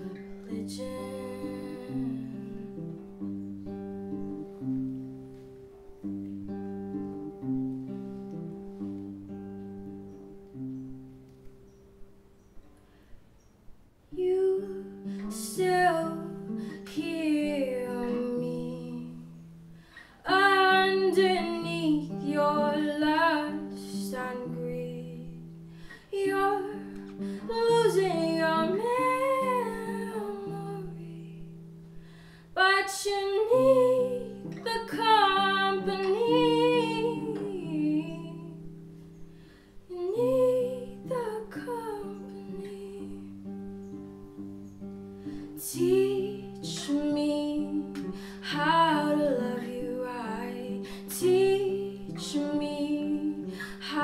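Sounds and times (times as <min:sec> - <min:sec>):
woman singing: 0:00.0 - 0:03.0, 0:14.1 - 0:31.8, 0:32.5 - 0:38.9, 0:39.8 - 0:43.6, 0:45.4 - 0:54.0
picked acoustic guitar: 0:00.0 - 0:54.0.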